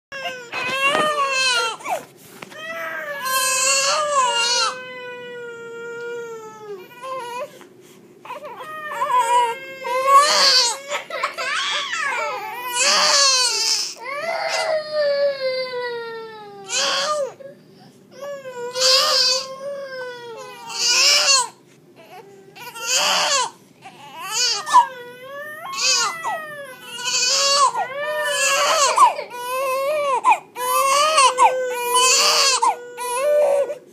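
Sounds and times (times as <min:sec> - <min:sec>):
newborn baby crying: 0:00.1 - 0:07.6, 0:08.2 - 0:17.4, 0:18.1 - 0:33.9
toddler crying and screaming: 0:08.3 - 0:17.4, 0:18.2 - 0:21.5, 0:24.2 - 0:33.8.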